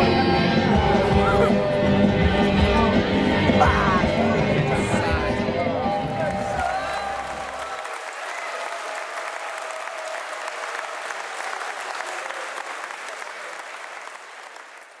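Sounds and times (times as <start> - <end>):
crowd applauding: 6.0 - 15.0.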